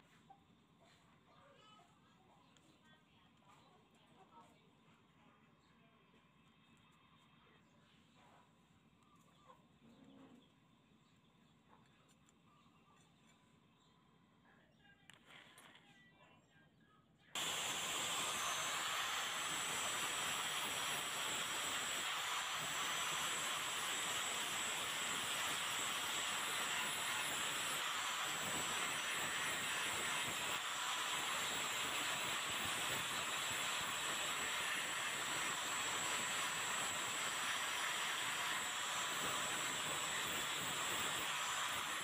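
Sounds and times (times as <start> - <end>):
angle grinder grinding metal: 17.4 - 42.0.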